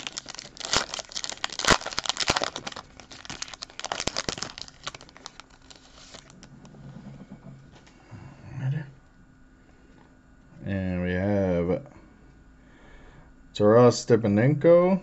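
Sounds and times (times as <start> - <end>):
foil wrapper crinkling and tearing: 0.0 - 6.4.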